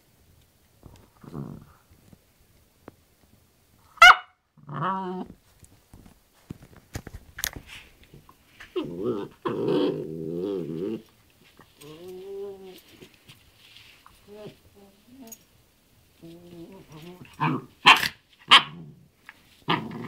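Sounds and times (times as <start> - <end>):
dog growling: 1.1 - 1.9, 4.6 - 5.3, 8.7 - 11.1, 16.2 - 17.8, 19.7 - 20.0
scratching and rustling of bed: 5.2 - 15.3.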